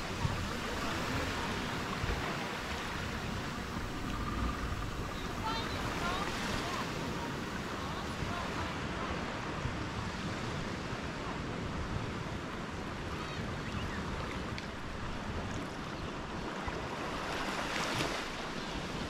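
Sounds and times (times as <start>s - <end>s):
small waves washing on sand: 0.0s - 19.0s.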